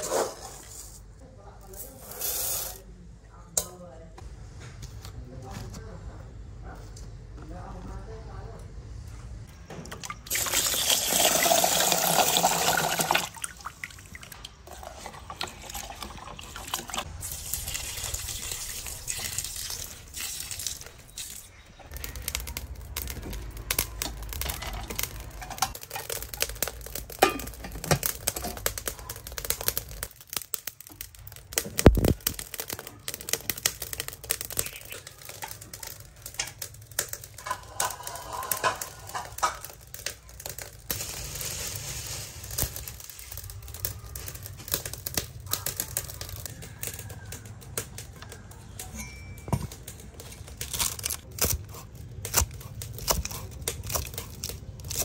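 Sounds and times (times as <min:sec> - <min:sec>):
water pouring into metal tin: 0:10.2 - 0:20.8.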